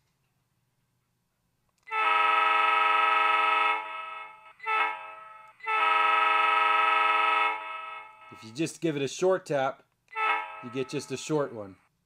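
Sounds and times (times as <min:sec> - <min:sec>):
locomotive horn through small speaker: 0:01.9 - 0:03.9, 0:04.6 - 0:08.1.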